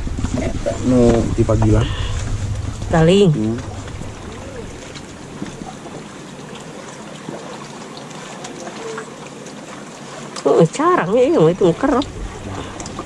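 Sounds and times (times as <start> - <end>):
steady water noise: 0.0 - 13.0
faint distant voices: 2.9 - 9.5.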